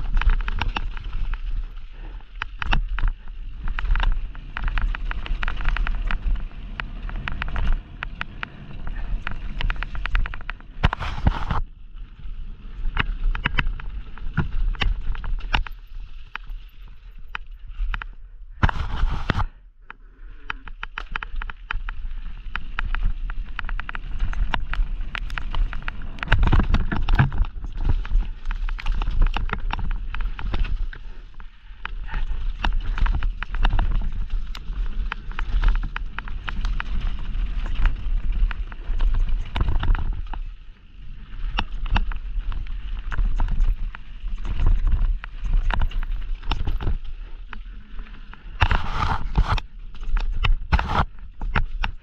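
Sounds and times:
bike chain and frame rattling: 0.0s - 18.2s, 20.4s - 52.0s
bike tyres crunching over stones: 0.0s - 19.6s, 20.3s - 52.0s
wind rumble on microphone: 0.0s - 19.6s, 20.6s - 52.0s.

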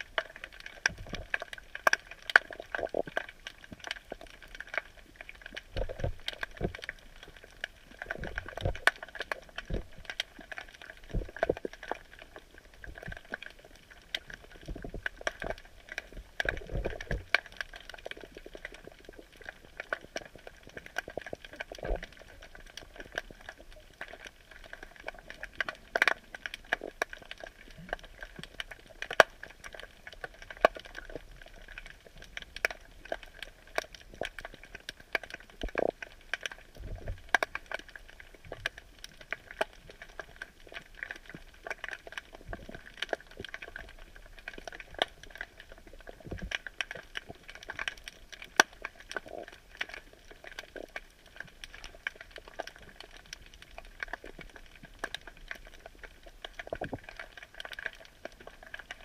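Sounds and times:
underwater clicks and pops: 0.1s - 7.0s, 8.0s - 12.1s, 14.2s - 24.8s, 25.4s - 31.2s, 32.6s - 37.9s.

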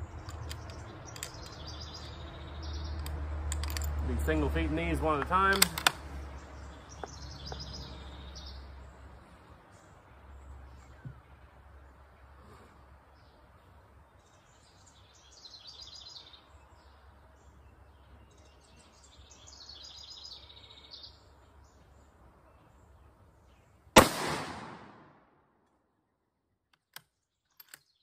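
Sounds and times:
faint birdsong: 0.0s - 24.0s, 24.6s - 28.0s
rifle shot: 24.0s - 25.3s.

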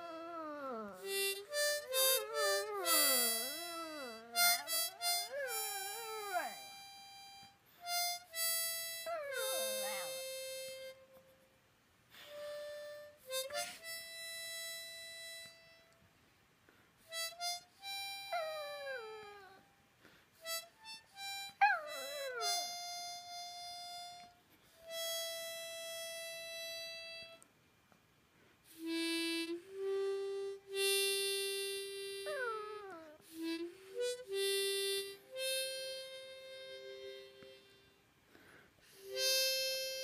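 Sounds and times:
dog howling: 0.0s - 6.7s, 9.0s - 10.2s, 18.4s - 19.6s, 21.6s - 22.6s
harmonica playing long notes: 0.0s - 11.0s, 12.2s - 16.0s, 17.1s - 19.6s, 20.4s - 27.4s, 28.7s - 40.0s.

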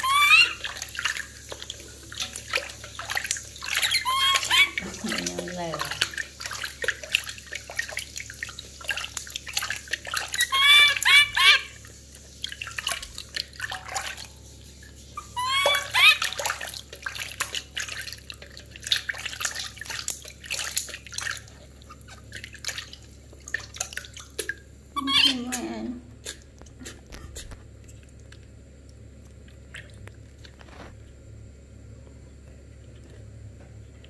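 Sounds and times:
baby monkey crying: 0.0s - 0.8s, 3.6s - 5.4s, 10.3s - 11.8s, 15.2s - 16.6s, 25.0s - 26.0s
water splashing and dripping: 0.0s - 27.0s, 29.3s - 30.6s.

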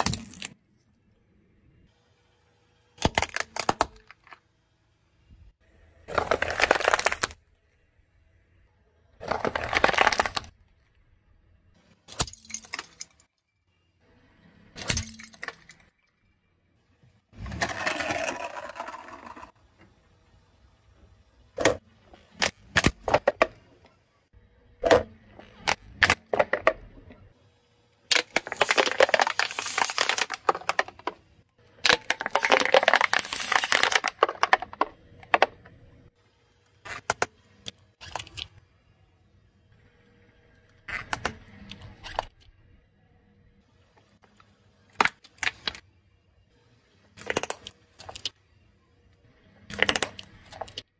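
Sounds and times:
tyre crushing plastic objects: 0.0s - 0.6s, 6.1s - 7.4s, 9.2s - 10.5s, 28.1s - 31.2s, 31.8s - 35.6s.

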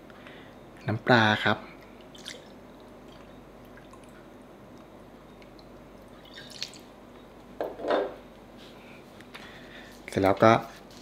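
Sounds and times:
small liquid drips: 1.8s - 6.9s.

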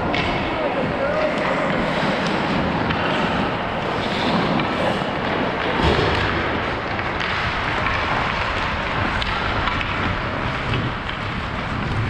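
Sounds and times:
skate blades on ice: 0.0s - 12.0s
wind on microphone: 2.4s - 12.0s.

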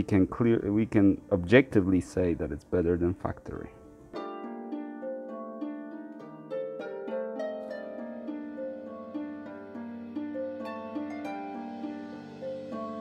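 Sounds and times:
plucked harp-like notes: 3.7s - 13.0s.

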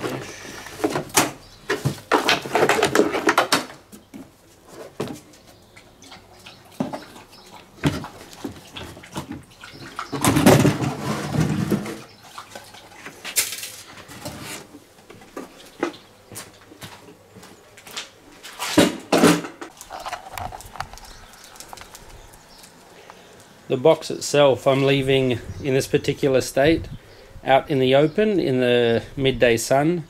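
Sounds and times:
scraping: 18.5s - 23.5s.

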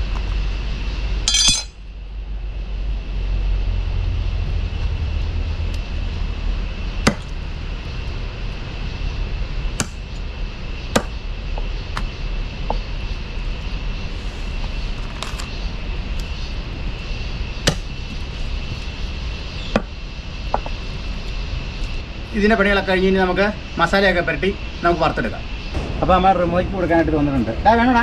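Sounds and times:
metallic clink: 1.3s - 1.8s
low rumble: 25.5s - 28.0s.

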